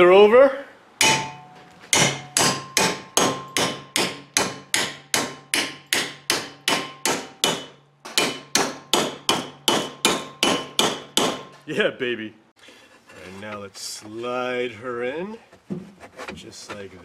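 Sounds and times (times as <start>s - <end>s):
hammer striking metal bar: 1.0s - 11.6s.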